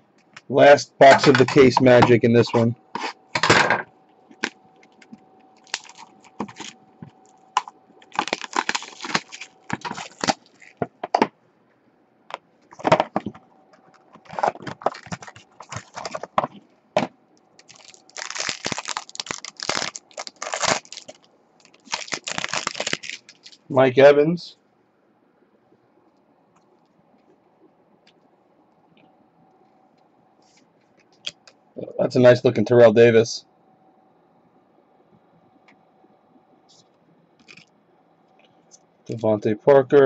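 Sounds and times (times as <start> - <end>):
crinkling plastic and foil: 4.3 - 10.9, 12.7 - 16.6, 17.6 - 23.7, 37.4 - 37.7
foil wrapper tearing: 4.4 - 6.8, 7.6 - 10.8, 13.9 - 16.4, 17.6 - 23.6.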